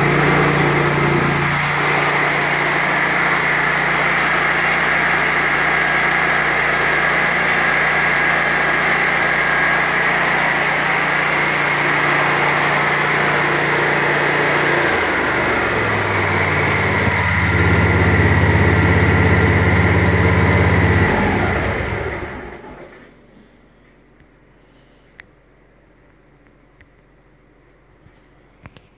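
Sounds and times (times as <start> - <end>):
lawn mower engine running: 0.0 - 23.0.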